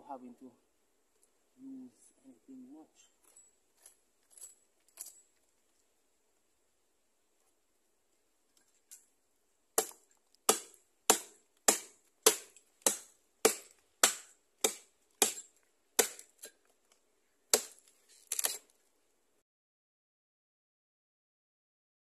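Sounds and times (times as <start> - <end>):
axe chopping into log: 9.8 - 16.6, 17.5 - 18.6.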